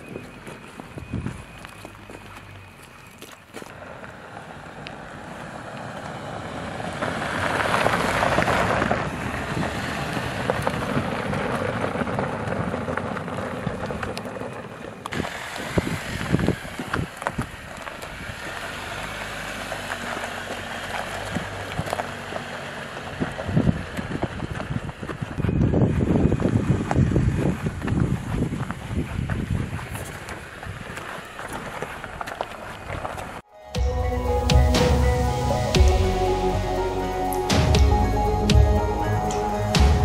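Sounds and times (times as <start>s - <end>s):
wind buffeting microphone: 0.0s - 1.7s, 6.4s - 18.6s, 23.0s - 33.4s
tyres crunching over gravel: 0.0s - 40.0s
car engine running: 3.7s - 40.0s
low thumps: 33.8s - 40.0s.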